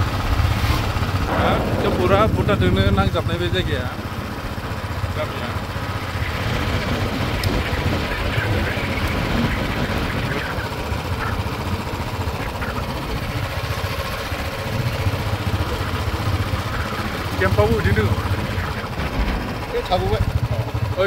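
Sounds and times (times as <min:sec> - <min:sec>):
wind on microphone: 0:00.0 - 0:04.2
vehicle engine running: 0:00.0 - 0:21.0.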